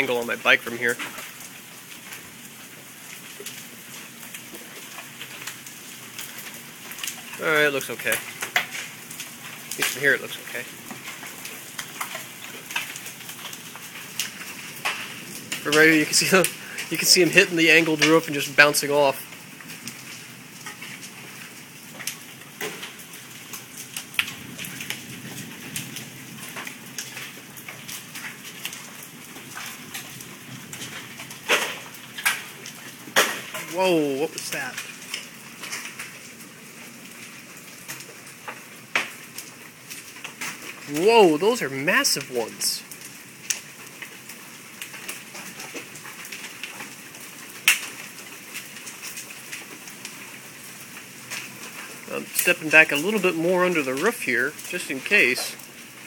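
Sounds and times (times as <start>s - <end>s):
hailstones hitting pavement and roof: 0.0s - 56.0s
rain hiss: 0.0s - 56.0s
loud hailstone crack: 30.8s - 33.8s.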